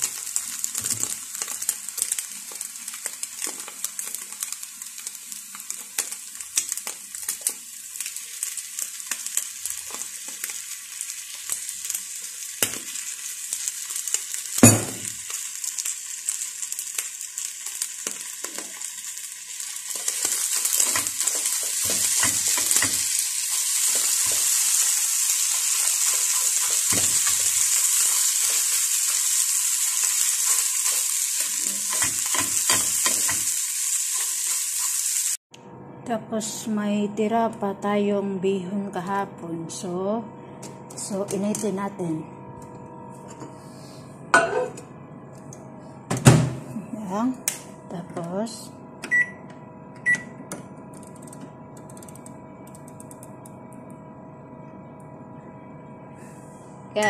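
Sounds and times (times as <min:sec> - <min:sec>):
eggs sizzling in a frying pan: 0:00.0 - 0:35.4.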